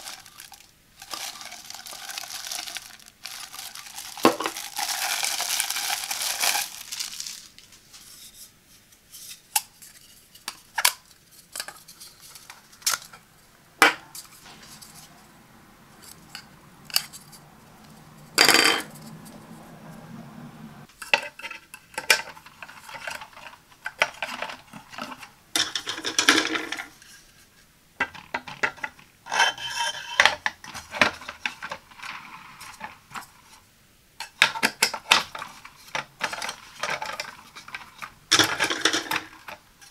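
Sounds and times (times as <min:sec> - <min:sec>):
plastic wrapping crinkling: 0:00.0 - 0:08.4
rustling: 0:00.0 - 0:20.9, 0:34.6 - 0:39.9.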